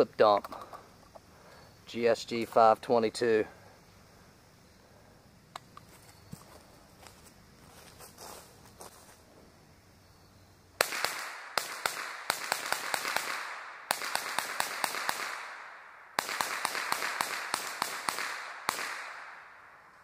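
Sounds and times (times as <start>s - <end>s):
rifle shots rapid fire: 10.8s - 19.4s.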